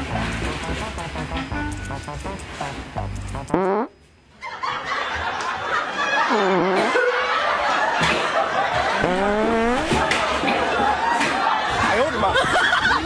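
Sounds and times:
pitch-sliding tones: 0.0s - 3.7s
snickering laughter: 4.4s - 13.0s.

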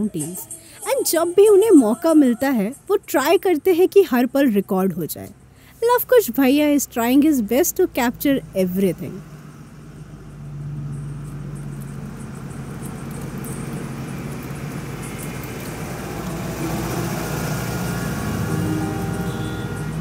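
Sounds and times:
road noise: 0.0s - 20.0s
car engine running: 6.5s - 20.0s.

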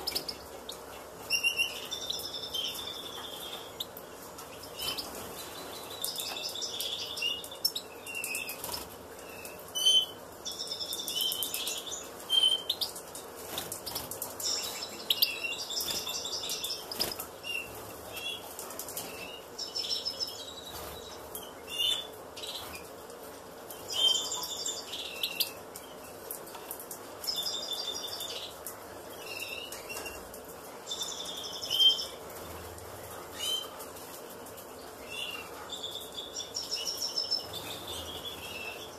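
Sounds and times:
finches twittering and chirping: 0.0s - 22.9s.

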